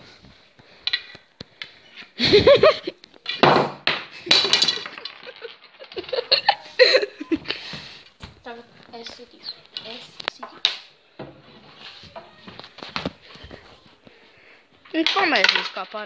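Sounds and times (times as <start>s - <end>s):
boys laughing: 2.2s - 3.0s, 4.2s - 8.0s.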